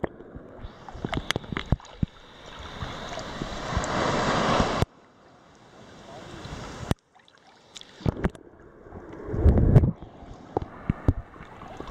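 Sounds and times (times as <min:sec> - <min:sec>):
underwater clicks and pops: 0:00.0 - 0:02.2, 0:07.7 - 0:08.4, 0:09.1 - 0:11.9
water sloshing and bubbling: 0:00.0 - 0:11.9
water splashing: 0:00.0 - 0:11.9.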